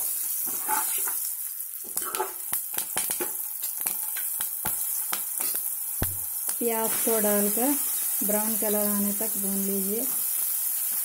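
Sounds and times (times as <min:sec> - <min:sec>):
spices sizzling in hot oil: 0:00.0 - 0:11.0
spatula scraping a pot: 0:00.4 - 0:01.2
oil popping and crackling: 0:00.8 - 0:06.9.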